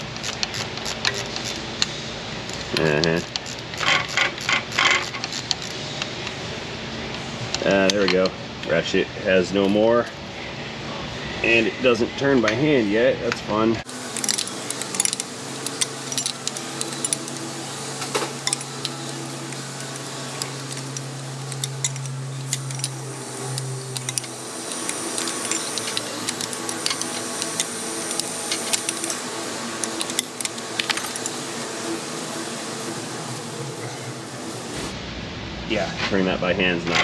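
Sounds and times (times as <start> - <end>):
ratchet wrench clicking: 0.0 - 6.1, 13.9 - 31.4
steady low hum: 0.0 - 37.0.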